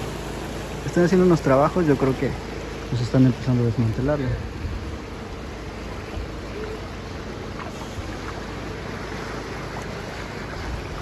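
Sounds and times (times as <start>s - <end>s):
surf washing: 0.0s - 11.0s
wind noise on microphone: 4.4s - 5.2s.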